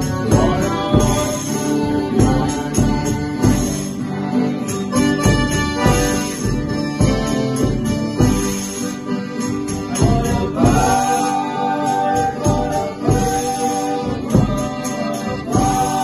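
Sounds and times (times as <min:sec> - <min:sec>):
men singing together: 0:00.0 - 0:04.6, 0:09.7 - 0:16.0
accordion: 0:00.0 - 0:16.0
strummed guitars: 0:00.0 - 0:16.0
tambourine jingles: 0:00.0 - 0:16.0.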